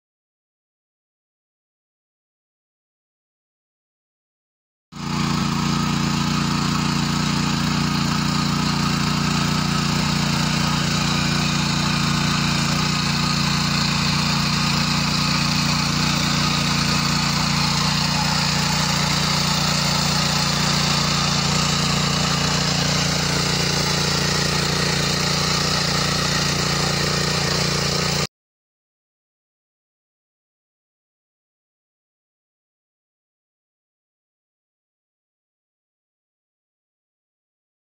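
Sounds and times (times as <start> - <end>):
tiller engine running: 5.0 - 28.3
tines churning soil: 5.0 - 28.3.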